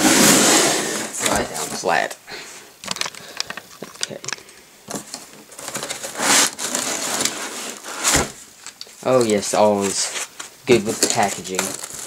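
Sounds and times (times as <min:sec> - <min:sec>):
cardboard scrape: 0:00.0 - 0:01.8, 0:05.6 - 0:08.4, 0:09.8 - 0:12.0
cardboard packaging crackling: 0:02.8 - 0:12.0.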